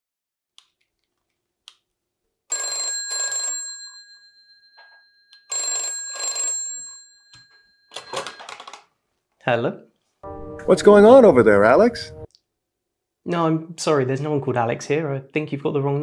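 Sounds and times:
telephone bell ringing: 2.5s - 8.8s.

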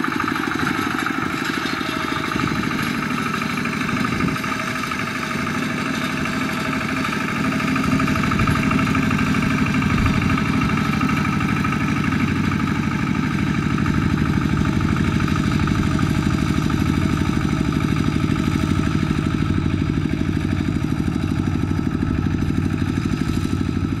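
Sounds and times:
diesel engine running under load: 0.0s - 24.0s.

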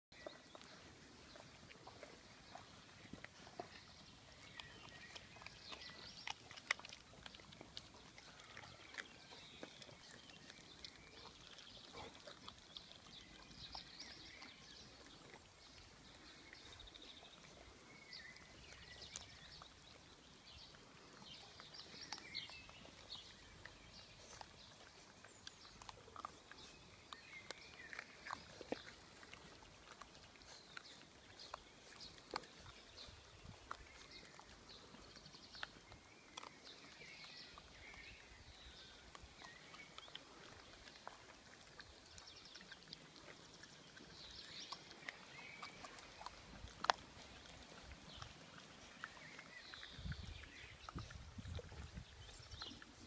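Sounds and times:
puppies chewing bones: 0.2s - 53.0s
small bones crunching: 3.1s - 13.4s, 24.2s - 32.7s, 35.2s - 37.0s, 45.0s - 48.5s.

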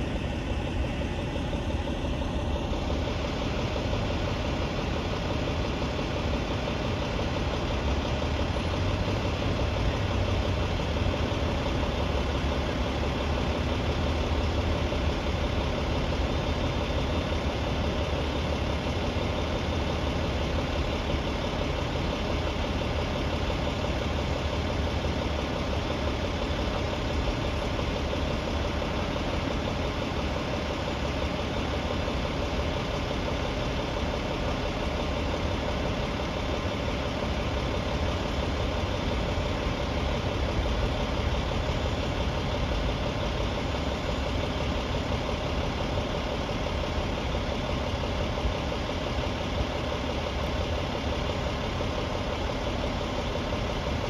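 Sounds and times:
truck engine idling: 0.0s - 54.0s.

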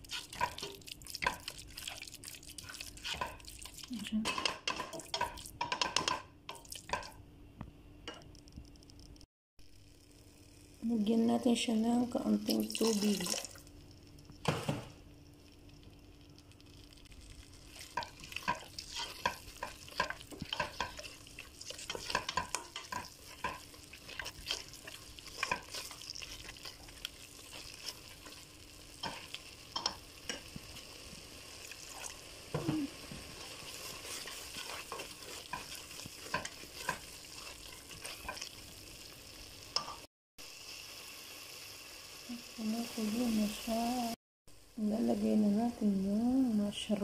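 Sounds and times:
sauce sizzling: 0.0s - 4.0s, 4.6s - 7.3s, 8.1s - 11.3s, 12.0s - 44.2s
spatula scraping a metal pot: 17.9s - 28.4s, 33.6s - 38.6s.

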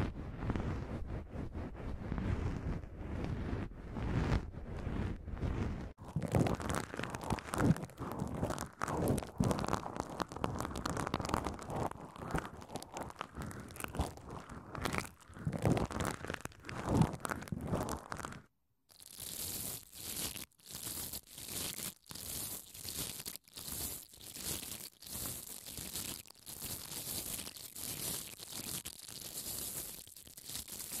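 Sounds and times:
brush scraping foam: 0.0s - 18.4s, 19.0s - 31.0s
bubble wrap crinkling: 5.9s - 31.0s.

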